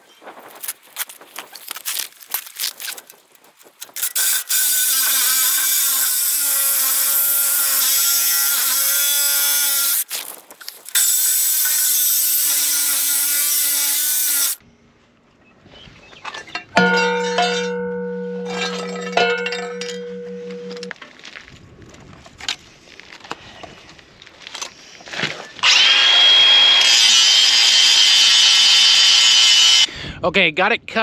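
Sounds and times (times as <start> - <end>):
reciprocating saw cutting steel pipe: 4.0 - 10.0, 11.0 - 14.6, 25.6 - 29.9.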